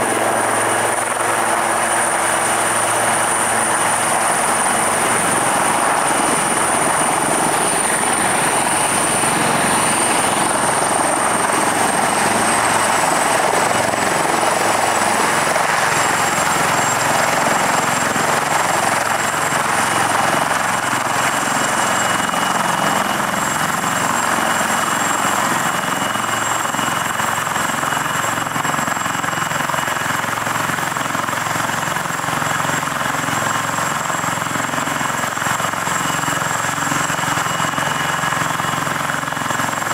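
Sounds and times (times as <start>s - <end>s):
helicopter rotor noise: 0.0s - 39.9s
high turbine whine: 0.0s - 39.9s.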